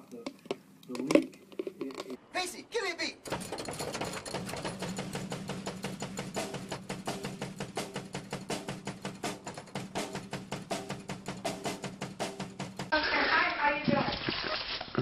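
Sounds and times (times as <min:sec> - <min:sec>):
drum kit fast beat: 0:03.4 - 0:12.9.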